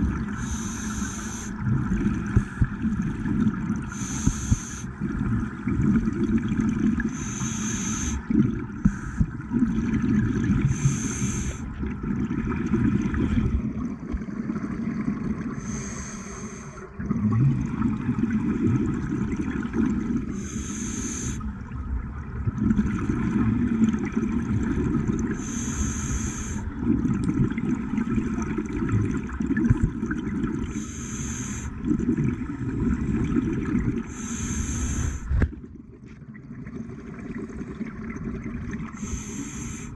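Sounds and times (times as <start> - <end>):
exhaled bubbles rumbling: 0.0 - 16.0, 16.8 - 39.9
regulator inhale hiss: 0.3 - 1.6, 3.9 - 5.0, 7.1 - 9.4, 10.6 - 11.7, 15.6 - 16.9, 20.3 - 21.5, 25.4 - 26.7, 30.7 - 31.8, 34.1 - 35.4, 39.0 - 39.9.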